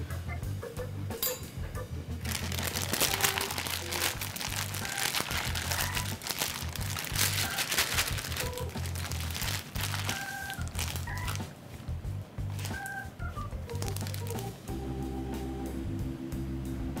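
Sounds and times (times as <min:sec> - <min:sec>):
background music: 0:00.0 - 0:17.0
plastic bag crinkling: 0:02.2 - 0:11.5, 0:12.5 - 0:13.0, 0:13.6 - 0:14.6.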